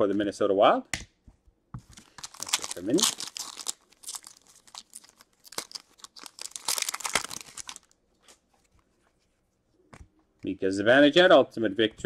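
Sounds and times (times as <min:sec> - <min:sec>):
foil wrapper crinkling and tearing: 0:01.9 - 0:08.0.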